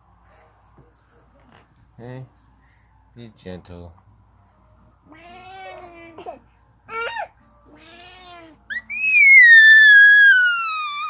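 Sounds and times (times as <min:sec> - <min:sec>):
baby squealing high-pitched: 0:08.7 - 0:11.0.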